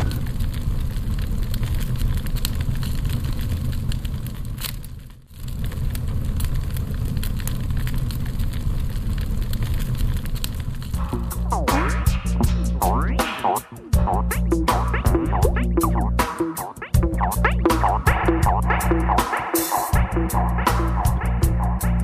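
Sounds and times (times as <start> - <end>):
roaring crackling fire: 0.0 - 22.0
music: 11.0 - 22.0.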